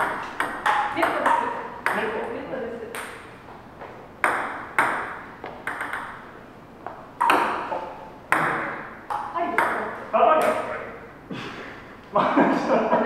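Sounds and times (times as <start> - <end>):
table tennis ball pocks: 4.2 - 6.2, 6.8 - 10.6.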